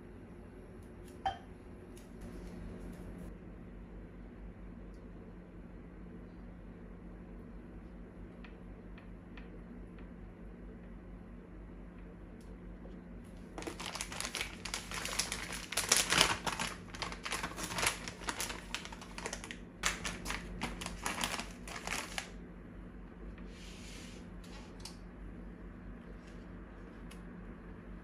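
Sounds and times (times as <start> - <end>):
plastic bag crinkling: 13.4 - 22.4.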